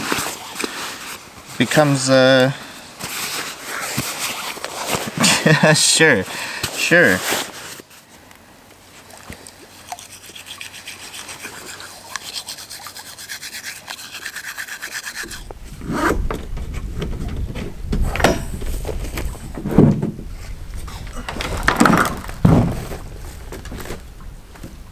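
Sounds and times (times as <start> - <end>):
toothbrush scrubbing teeth: 9.8 - 15.5
wind rumbling on microphone: 15.2 - 24.9
dull thumps: 15.4 - 24.8.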